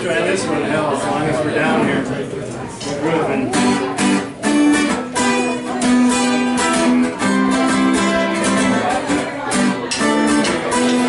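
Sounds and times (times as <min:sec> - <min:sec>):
acoustic guitar strumming chords: 0:02.8 - 0:11.0.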